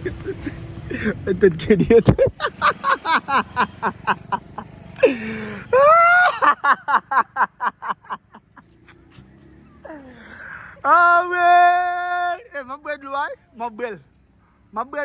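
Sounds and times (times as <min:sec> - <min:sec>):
person laughing hard: 0:00.0 - 0:08.8.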